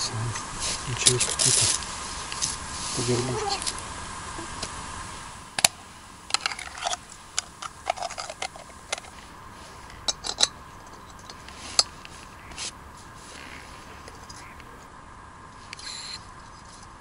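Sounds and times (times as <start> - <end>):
small objects clicking and tapping: 5.6 - 9.2.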